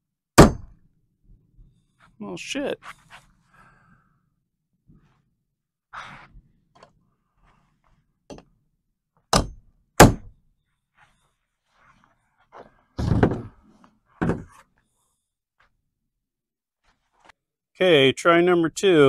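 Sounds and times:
light tapping and handling knocks: 0:08.3 - 0:08.6.

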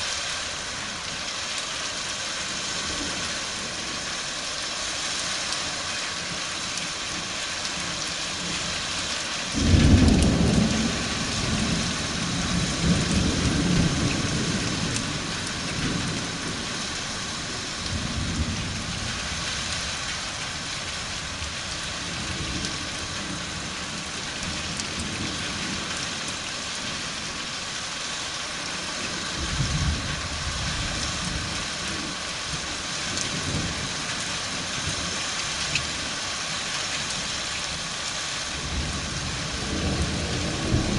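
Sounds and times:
steady rain: 0:00.0 - 0:40.9
thunder rumbling: 0:09.5 - 0:19.5, 0:38.5 - 0:40.9.

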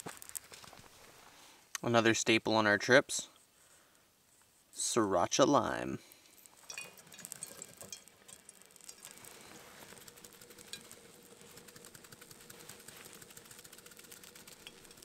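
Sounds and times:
spice bottle ticking and rattling: 0:06.2 - 0:15.0.

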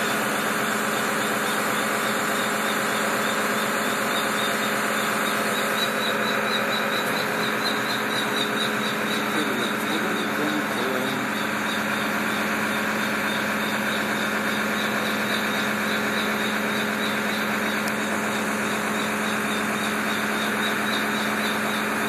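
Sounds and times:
aerial platform engine and hydraulics drone: 0:00.0 - 0:22.0.

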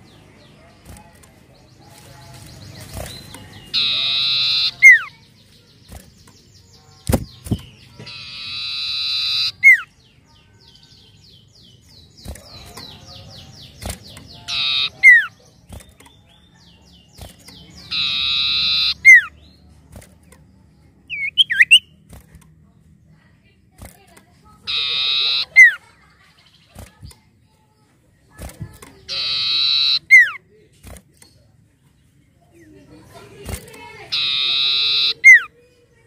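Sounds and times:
bird harsh buzzy calls: 0:02.8 - 0:05.2, 0:07.0 - 0:09.9, 0:13.6 - 0:15.9, 0:16.9 - 0:19.4, 0:24.6 - 0:25.9, 0:29.0 - 0:30.4, 0:33.8 - 0:35.5.

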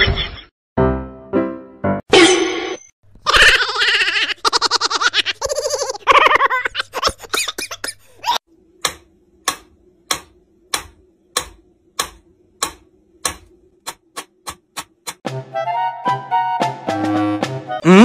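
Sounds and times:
metronome ticking: 0:08.8 - 0:15.2.

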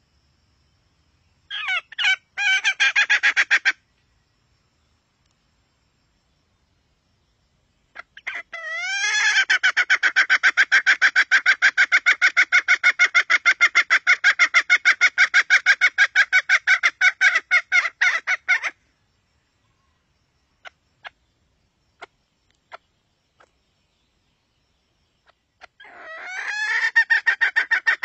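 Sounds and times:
hen clucking: 0:25.6 - 0:28.0.

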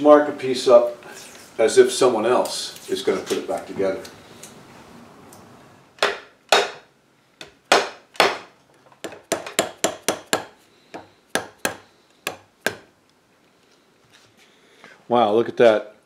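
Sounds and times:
hammer knocking on wood: 0:09.0 - 0:12.9.

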